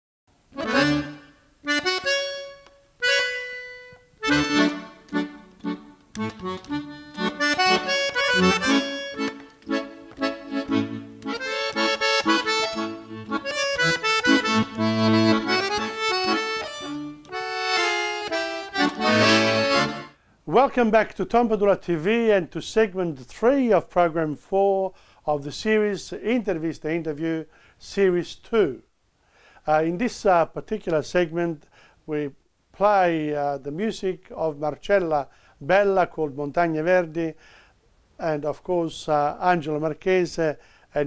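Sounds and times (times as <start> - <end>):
accordion music: 0.5 - 20.2.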